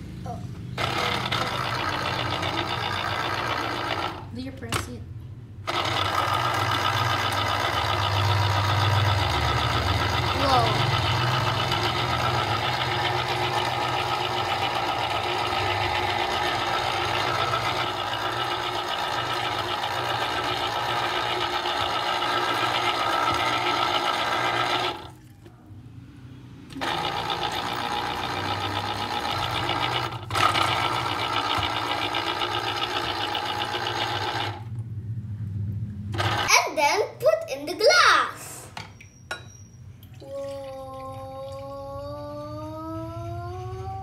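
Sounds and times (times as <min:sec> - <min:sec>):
electric citrus juicer whirring: 0:00.7 - 0:04.3, 0:05.7 - 0:25.2, 0:26.6 - 0:34.8, 0:36.1 - 0:36.6.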